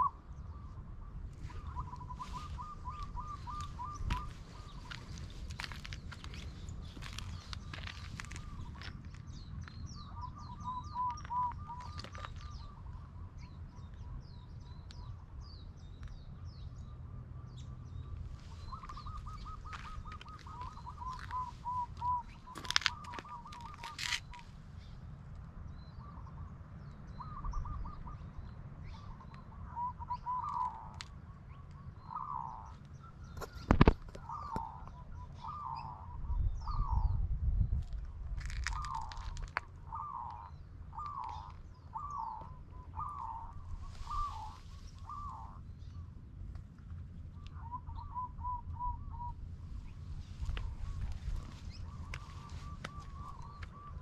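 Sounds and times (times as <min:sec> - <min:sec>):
birds calling: 0:00.0 - 0:25.1, 0:25.7 - 0:37.2, 0:38.4 - 0:46.4, 0:47.2 - 0:54.0
low rumble: 0:48.6 - 0:54.0.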